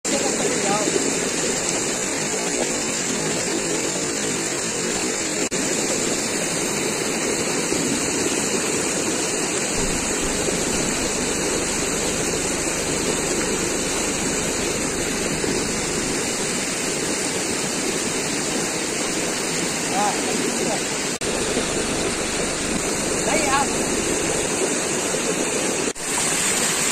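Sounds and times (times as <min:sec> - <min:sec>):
floodwater rushing over rocks: 0:00.1 - 0:26.9
low rumble: 0:09.7 - 0:17.9, 0:21.2 - 0:24.6.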